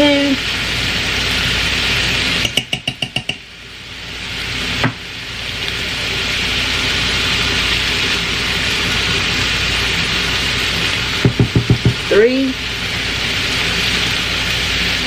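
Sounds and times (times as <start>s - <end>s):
meat sizzling in a pot: 0.0s - 15.0s
spoon tapping metal pot: 2.4s - 3.5s, 11.2s - 12.0s.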